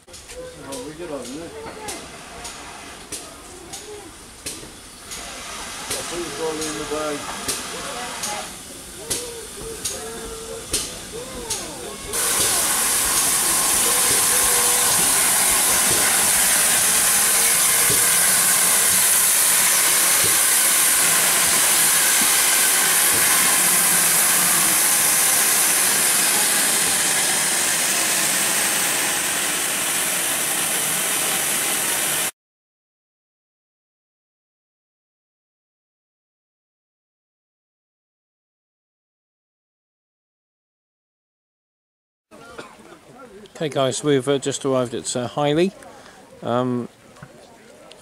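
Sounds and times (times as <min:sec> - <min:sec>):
steam locomotive hissing: 0:00.1 - 0:32.3.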